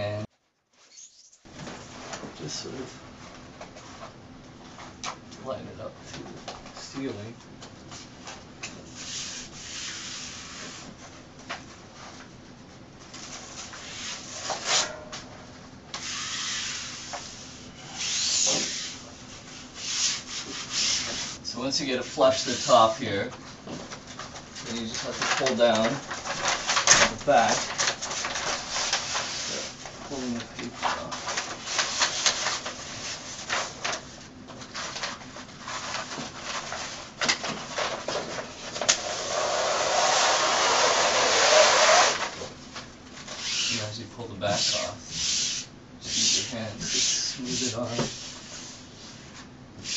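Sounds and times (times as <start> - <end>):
sheet rubbing against wall: 8.8 - 11.2, 13.2 - 14.9, 16.0 - 21.4, 24.7 - 42.6, 44.5 - 49.9
paper crackling and rustling: 22.2 - 43.9.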